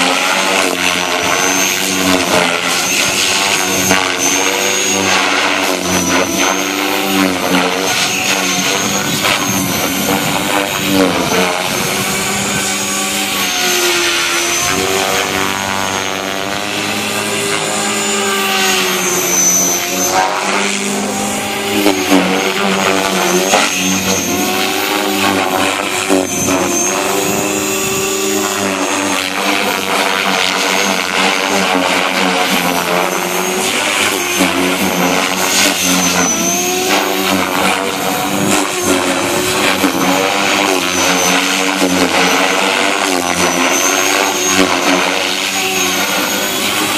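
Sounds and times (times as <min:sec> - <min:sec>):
model helicopter rotor whine: 0:00.0 - 0:46.9.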